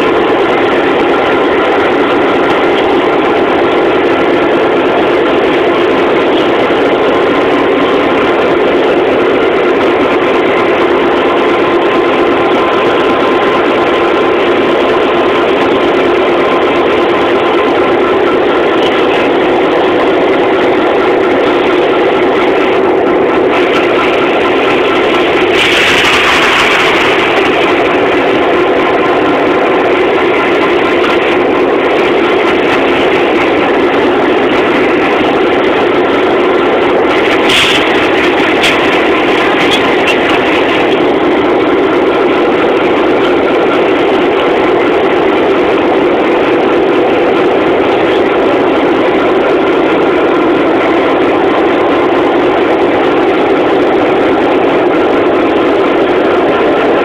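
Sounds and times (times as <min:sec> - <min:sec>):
diesel locomotive engine running: 0:00.0 - 0:57.0.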